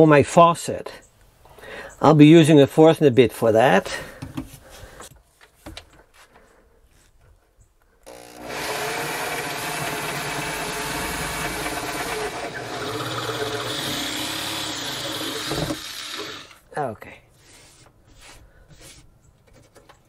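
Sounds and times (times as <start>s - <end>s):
electric drill boring into wood: 8.0s - 16.6s.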